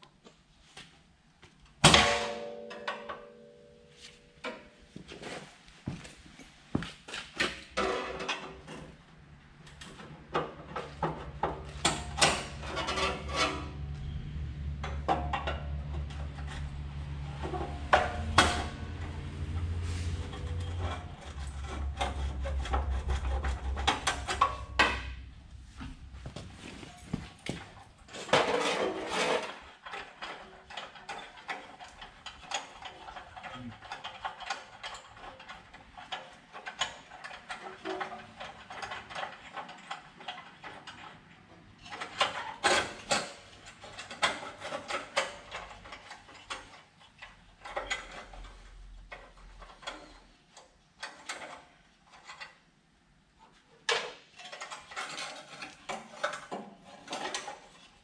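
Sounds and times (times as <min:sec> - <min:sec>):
metal knocks and clanks: 0:09.9 - 0:50.2.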